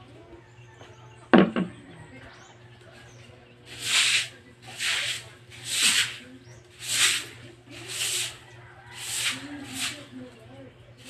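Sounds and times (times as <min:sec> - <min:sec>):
broom sweeping a wet floor: 0:03.7 - 0:10.2.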